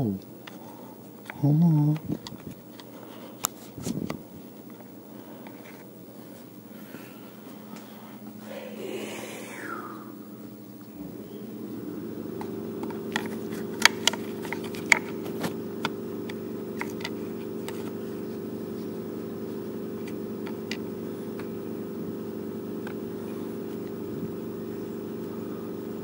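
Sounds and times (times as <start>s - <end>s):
steady machine hum: 0.0s - 26.0s
clicks on plastic starter housing: 12.4s - 18.0s, 20.0s - 21.5s.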